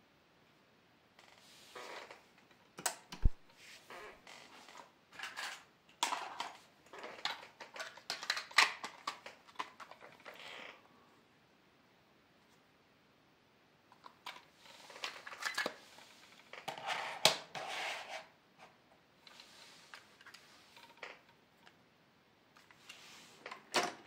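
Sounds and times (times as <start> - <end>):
plastic cassette case clicks: 7.2 - 10.0.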